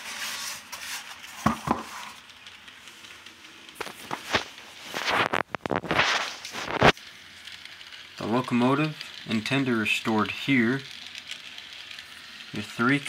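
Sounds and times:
plastic crinkling and rustling: 0.0s - 13.0s.

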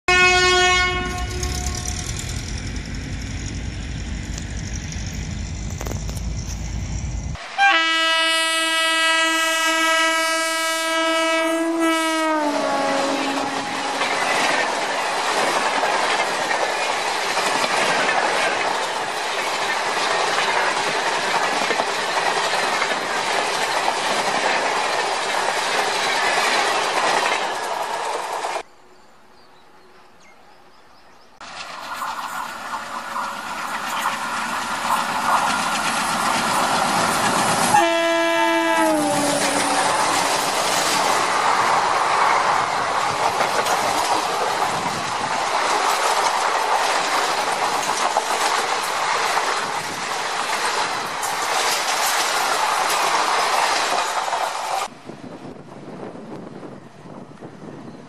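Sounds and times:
train horn blowing: 0.1s - 2.2s, 7.5s - 14.1s, 37.6s - 40.1s
train wheels clattering on rails: 0.8s - 7.4s, 13.1s - 28.6s, 31.4s - 54.9s.

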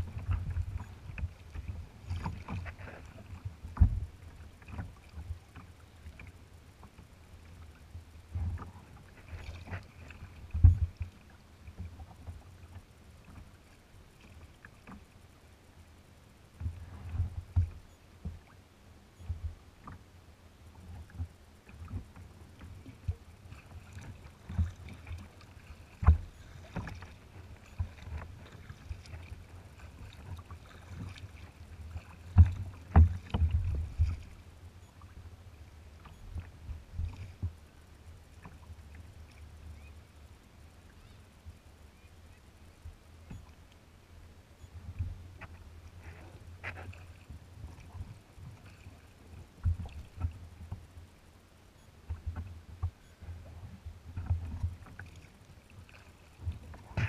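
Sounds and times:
water lapping against kayak hull: 0.0s - 57.0s
knocks and low thumps: 3.7s - 4.1s.

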